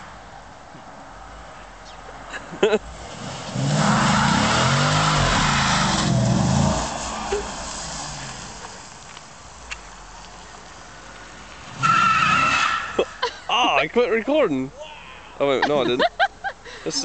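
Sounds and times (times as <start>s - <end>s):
car engine revving: 2.8s - 8.9s
tyres squealing: 11.7s - 14.0s.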